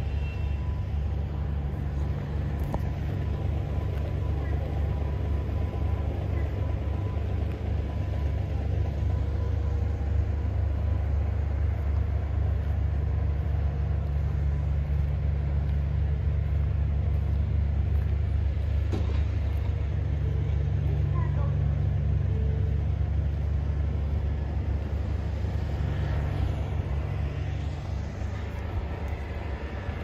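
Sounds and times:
engine idling: 0.0 - 30.0.

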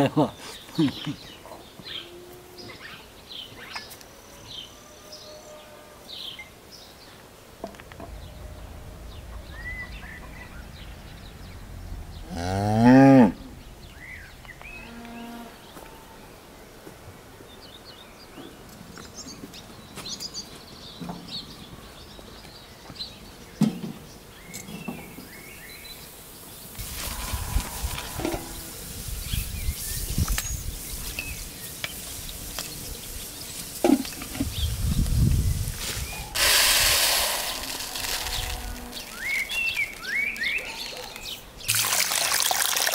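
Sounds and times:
cow mooing: 12.2 - 13.5.

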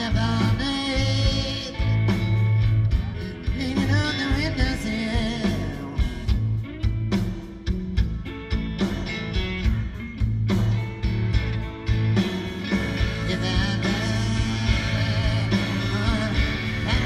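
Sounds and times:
live blues-rock band playing: 0.0 - 17.0.

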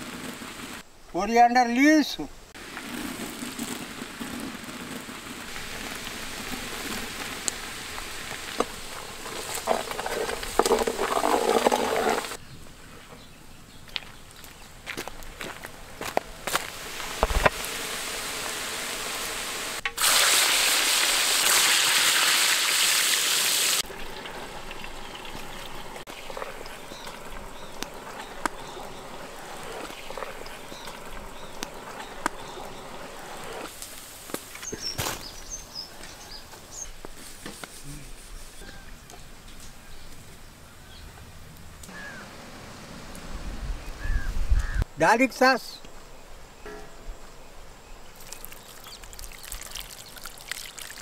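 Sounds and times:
loud sizzling hiss: 0.0 - 12.4, 15.3 - 38.7
potato slices deep-frying: 16.7 - 34.4, 48.2 - 51.0.

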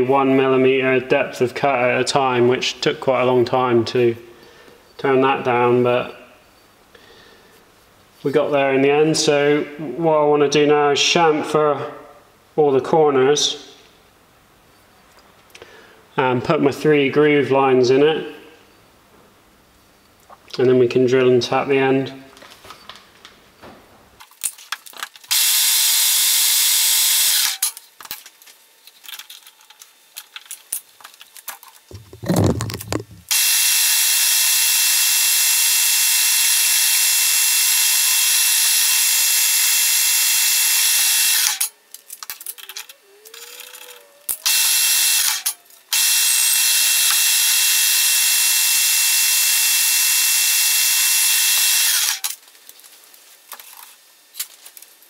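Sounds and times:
tool post and handles clicking: 29.0 - 33.3, 41.4 - 44.6
low thump: 31.9 - 33.3.

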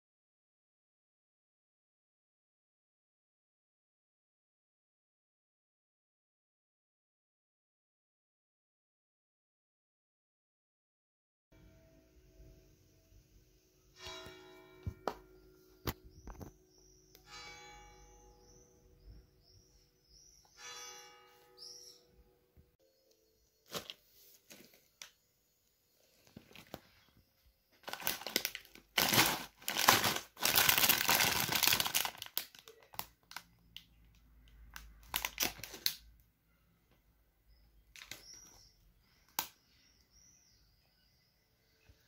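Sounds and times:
plastic snack bag crinkling: 26.2 - 26.9, 27.8 - 33.9, 34.6 - 36.1.

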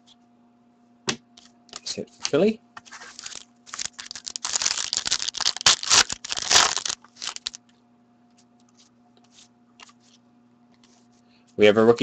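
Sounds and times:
foil pack tearing and crinkling: 2.9 - 7.6.

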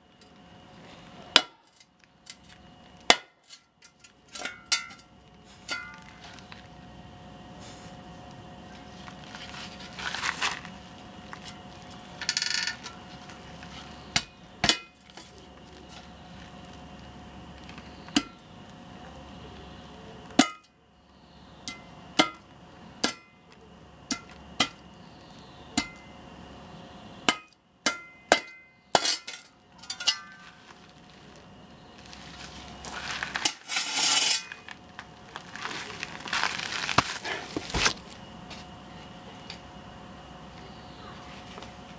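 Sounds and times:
spade striking battery on concrete: 1.3 - 6.2, 14.1 - 15.4, 20.4 - 20.7, 21.6 - 23.4, 24.1 - 24.9, 25.8 - 26.1, 27.2 - 30.6, 32.9 - 34.7
footsteps on gravel: 5.9 - 6.8, 7.7 - 12.2, 30.2 - 38.7.

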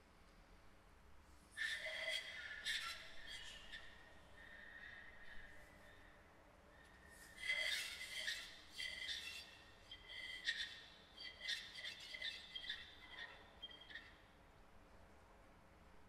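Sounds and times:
squeaky whistle-like sounds: 7.4 - 14.2.

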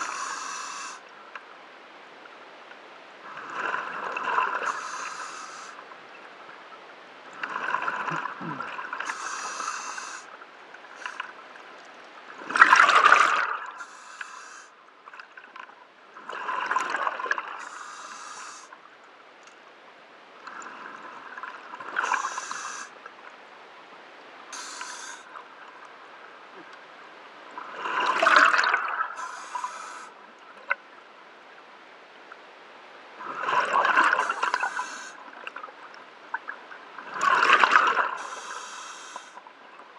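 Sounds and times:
regulator inhale hiss: 0.0 - 1.1, 4.6 - 5.8, 9.0 - 10.4, 11.0 - 11.3, 13.8 - 14.8, 17.6 - 18.8, 22.0 - 23.0, 24.5 - 25.3, 29.2 - 30.1, 34.1 - 35.2, 38.2 - 39.4
exhaled bubbles underwater: 12.4 - 13.8, 27.8 - 29.2.

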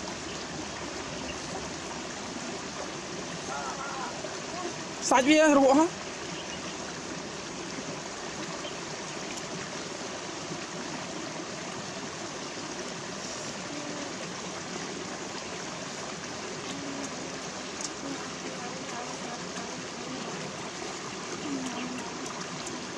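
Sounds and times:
rocky stream rushing: 0.0 - 22.9.

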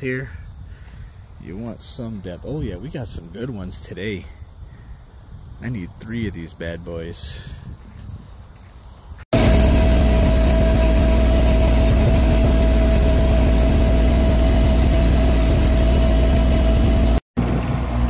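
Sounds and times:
loader engine running: 9.4 - 18.0.

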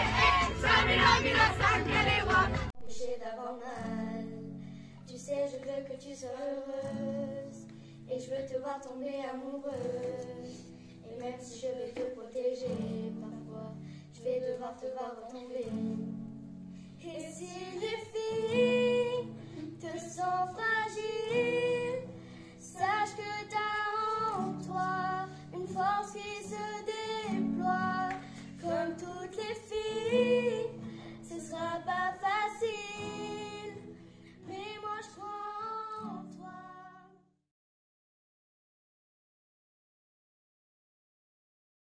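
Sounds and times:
acoustic guitar strumming: 0.0 - 2.7
girls singing together: 0.0 - 4.4, 5.1 - 7.6, 17.0 - 33.9.

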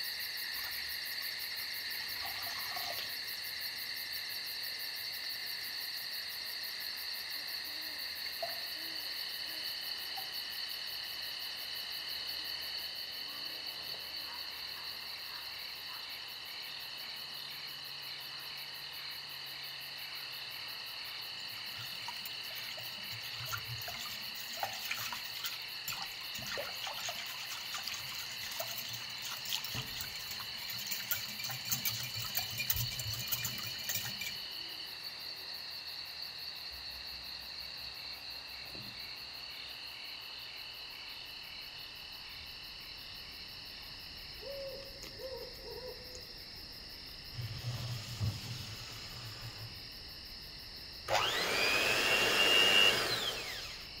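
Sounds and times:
insects chirping: 0.0 - 54.0
whisk scraping a glass bowl: 21.7 - 34.4.

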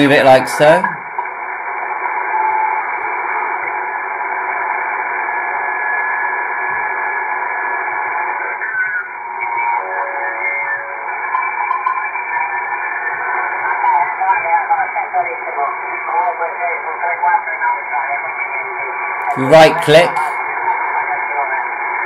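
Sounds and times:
radio static hiss: 0.0 - 22.0
heterodyne whistles: 8.5 - 12.4.

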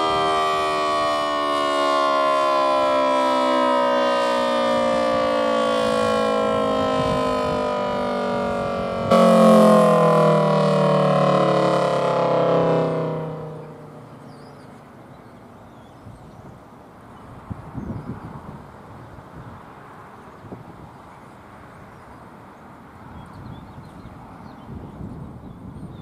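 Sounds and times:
siren winding down: 0.0 - 14.8.

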